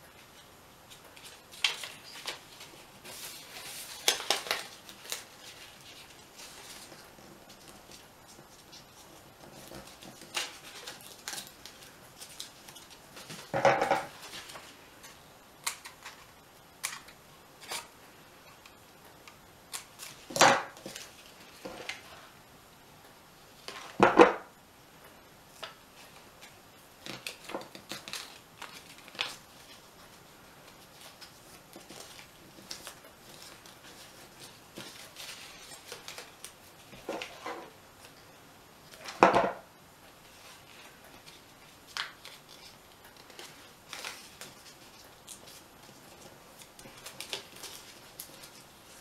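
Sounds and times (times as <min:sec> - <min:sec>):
loud paper handling noises: 0:00.2 - 0:17.9, 0:25.5 - 0:38.2, 0:40.2 - 0:49.0
paper crinkling: 0:00.2 - 0:22.3, 0:25.5 - 0:39.2, 0:40.2 - 0:49.0.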